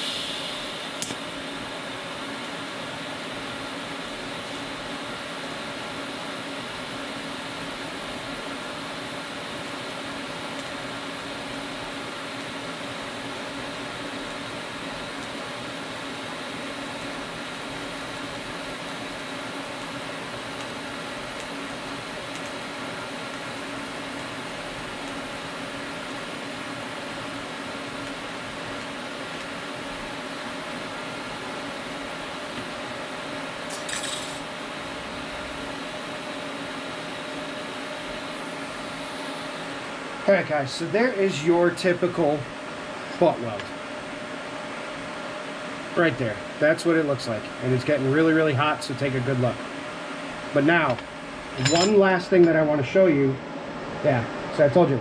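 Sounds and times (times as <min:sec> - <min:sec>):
welding arc hissing: 0:00.0 - 0:02.2, 0:33.2 - 0:35.8.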